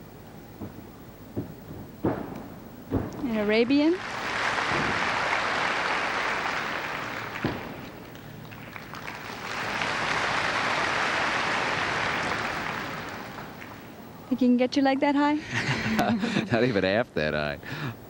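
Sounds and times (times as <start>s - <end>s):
sharp thump: 0.6s - 3.4s
crowd applauding: 3.5s - 14.0s.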